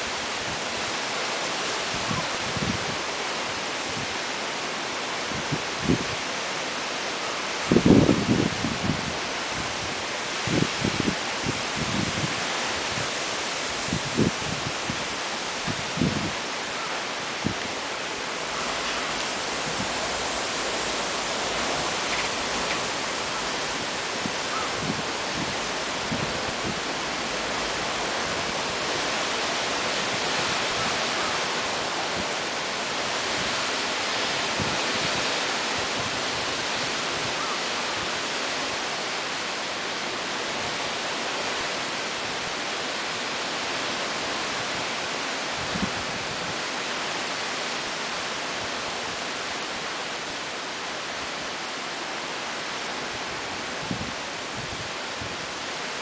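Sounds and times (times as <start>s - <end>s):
heavy rain and wind: 0.0s - 56.0s.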